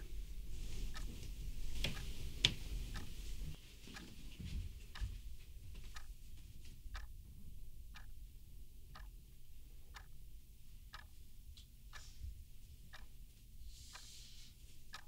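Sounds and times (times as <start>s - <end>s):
low room hum: 0.0s - 15.0s
clock ticking: 0.9s - 1.1s, 1.8s - 2.1s, 2.9s - 3.1s, 5.8s - 6.2s, 6.9s - 7.3s, 7.9s - 8.3s, 8.9s - 10.3s, 10.9s - 11.2s, 11.9s - 12.1s, 12.9s - 13.2s, 13.9s - 14.1s.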